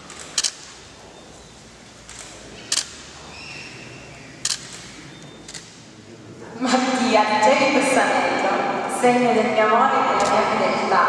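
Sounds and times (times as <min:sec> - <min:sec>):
camera shutter clicks: 0:00.1 - 0:00.7, 0:02.1 - 0:03.0, 0:04.4 - 0:05.7.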